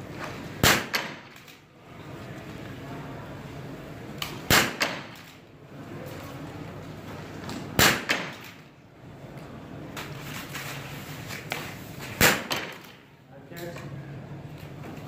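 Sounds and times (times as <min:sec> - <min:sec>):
rifle shots ringing: 0:00.6 - 0:01.3, 0:07.8 - 0:08.6.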